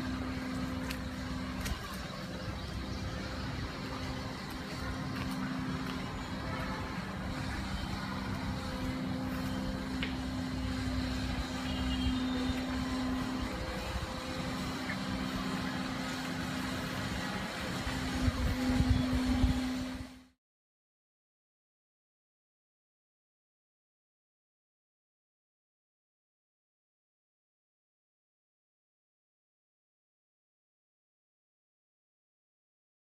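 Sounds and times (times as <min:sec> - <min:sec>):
motor humming with low rumble: 0:00.0 - 0:20.3.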